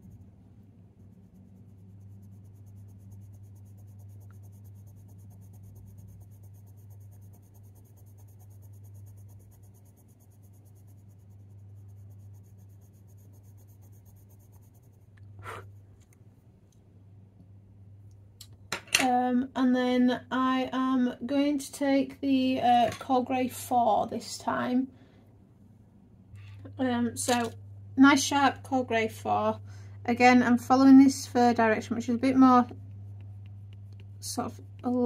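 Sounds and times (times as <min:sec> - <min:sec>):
coloured pencil scratching on paper: 0:00.0 - 0:15.9, 0:26.8 - 0:35.0
low steady hum: 0:00.0 - 0:35.0.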